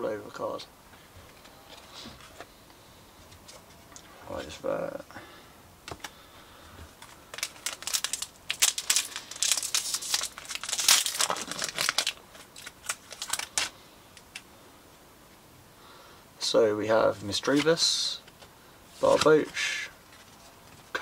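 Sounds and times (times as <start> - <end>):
foil wrapper crinkling: 7.0 - 14.4.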